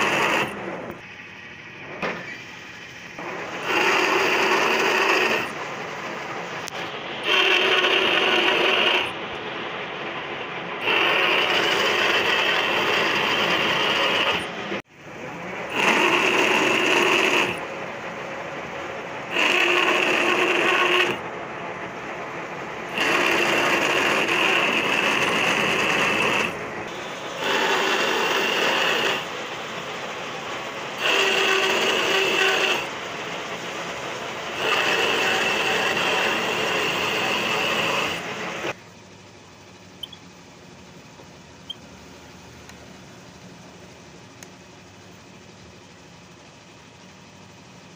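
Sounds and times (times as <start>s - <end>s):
lathe cutting with ringing tone: 0.0s - 0.7s, 3.1s - 5.6s, 6.5s - 9.2s, 10.8s - 14.8s, 15.6s - 17.7s, 19.2s - 21.2s, 22.8s - 33.2s, 34.2s - 38.8s
lathe running: 0.0s - 38.9s.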